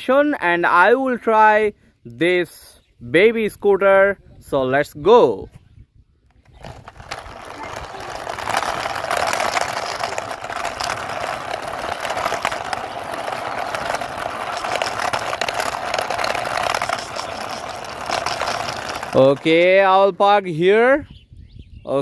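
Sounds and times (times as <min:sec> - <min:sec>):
toy wheels rolling on concrete: 0:06.4 - 0:20.8.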